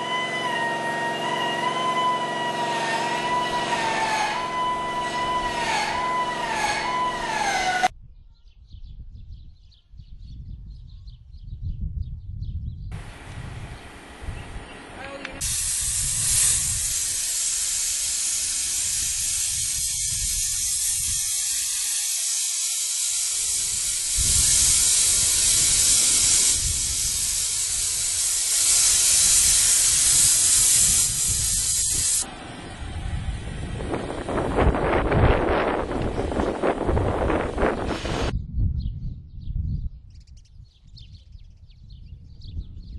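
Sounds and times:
sandblaster nozzle hissing: 0:00.0 - 0:07.9, 0:15.2 - 0:38.3.

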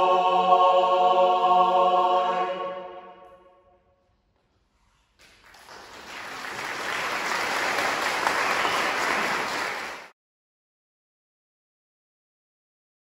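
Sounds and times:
audience applause: 0:05.2 - 0:10.1.

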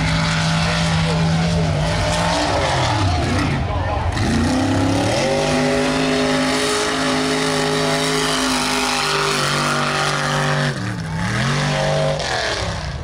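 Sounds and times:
truck engine revving high: 0:00.0 - 0:13.0.

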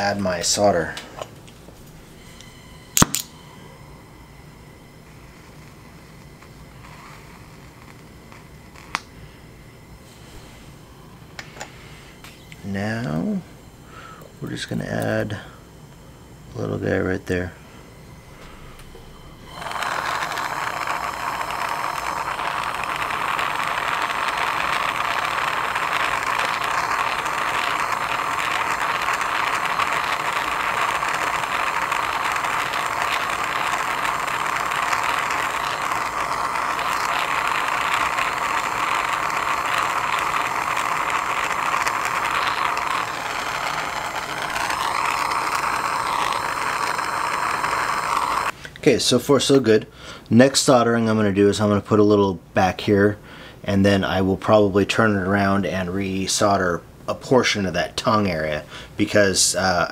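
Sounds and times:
torch flame hissing: 0:03.9 - 0:15.2, 0:17.9 - 0:48.6.

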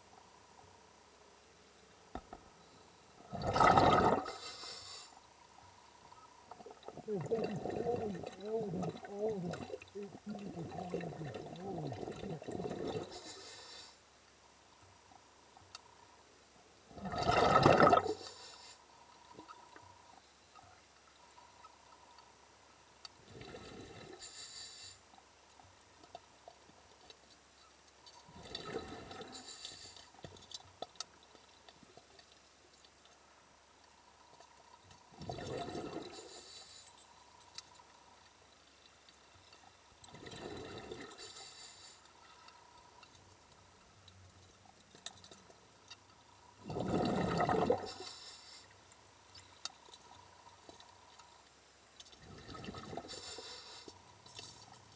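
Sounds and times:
muffled underwater water rushes: 0:03.2 - 0:04.8, 0:06.1 - 0:13.7, 0:16.8 - 0:18.6, 0:46.5 - 0:48.4.

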